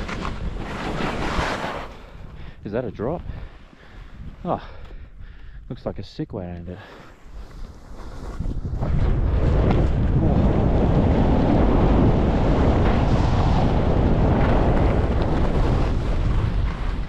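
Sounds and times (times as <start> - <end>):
skis hissing over snow: 0.6 - 2.0, 7.0 - 8.9
wind buffeting microphone: 1.9 - 5.8, 7.3 - 17.0.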